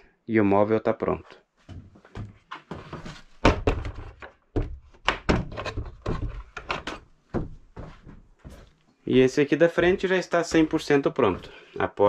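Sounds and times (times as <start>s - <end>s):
wooden door knocks and thunks: 3.4s - 7.6s.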